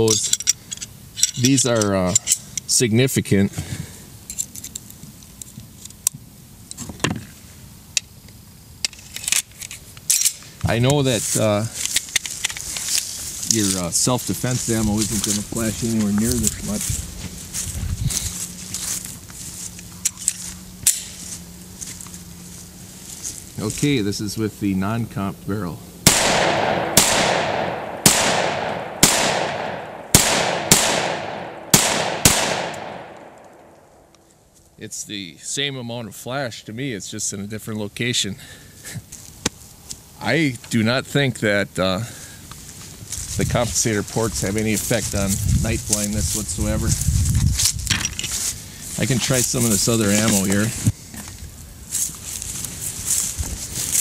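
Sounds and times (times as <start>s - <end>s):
pistol shots with echo: 26.0s - 34.0s.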